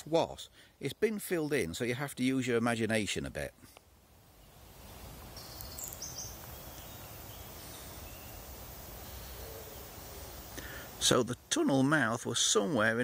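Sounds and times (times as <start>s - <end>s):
high bird chirps: 5.4s - 10.0s.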